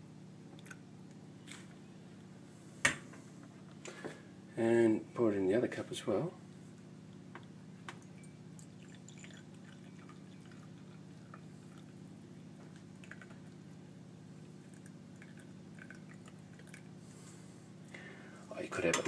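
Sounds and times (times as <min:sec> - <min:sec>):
low steady hum: 0:00.0 - 0:19.0
coffee trickling into mug: 0:07.9 - 0:13.7, 0:14.4 - 0:16.9.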